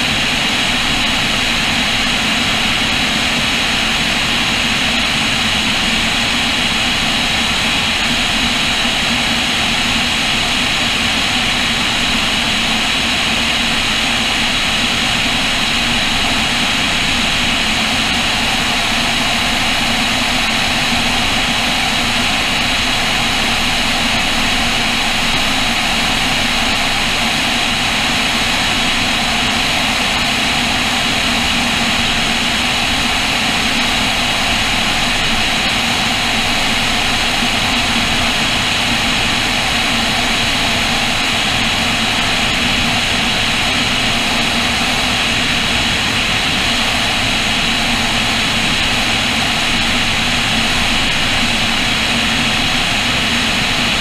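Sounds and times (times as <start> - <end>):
propeller aircraft engine drone: 0.0 - 54.0.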